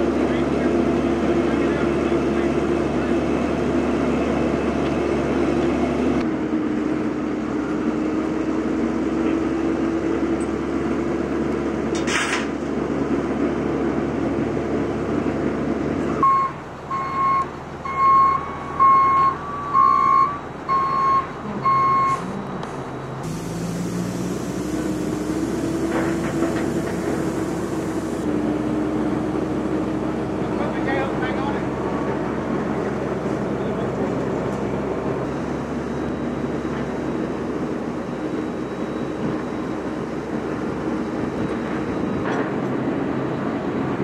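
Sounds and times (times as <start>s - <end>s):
truck engine idling: 12.6s - 44.0s
reversing alarm beeping: 16.2s - 28.3s, 35.2s - 44.0s.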